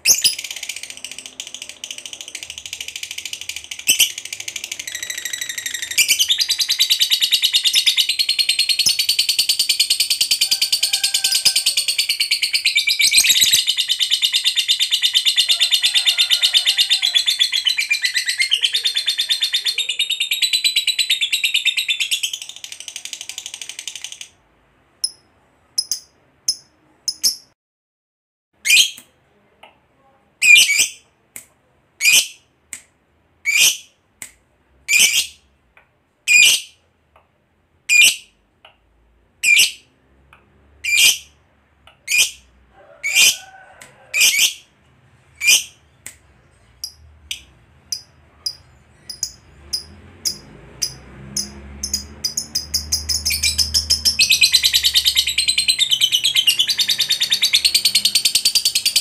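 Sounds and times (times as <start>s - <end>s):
bird chattering trill: 0.0s - 15.8s
bird shrill chirps: 3.8s - 15.4s, 51.4s - 59.0s.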